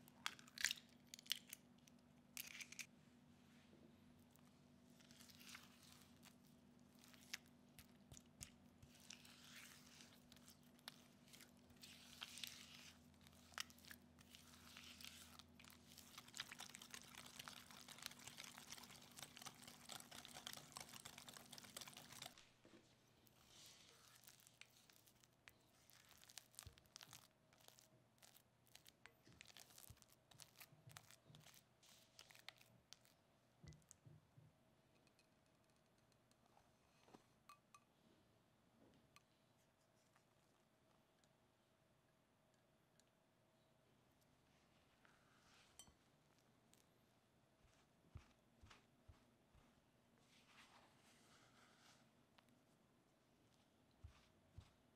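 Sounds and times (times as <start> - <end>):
spatula folding mixture: 3.5 - 36.5, 44.2 - 54.9
whisk beating batter in glass bowl: 14.3 - 22.4.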